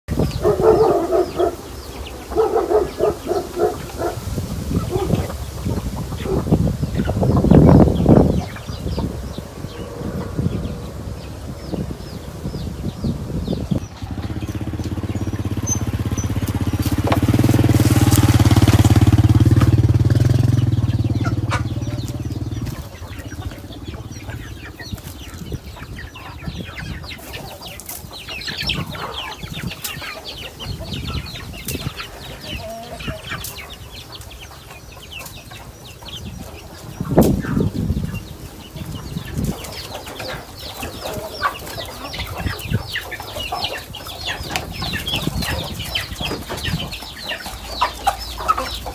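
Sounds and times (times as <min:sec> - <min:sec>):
chicks peeping: 0:00.0 - 0:48.9
fowl clucking: 0:00.4 - 0:07.8, 0:20.7 - 0:37.7, 0:38.8 - 0:48.9
motor engine running: 0:13.4 - 0:24.6.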